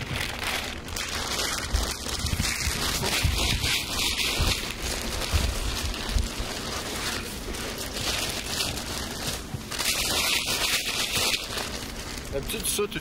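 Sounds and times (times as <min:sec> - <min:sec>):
plastic tarp rustling and crackling: 0:00.0 - 0:13.0.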